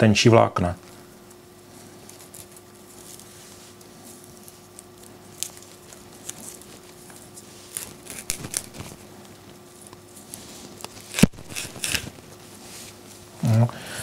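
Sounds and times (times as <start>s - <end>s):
dry crackling and tearing: 1.9s - 12.4s.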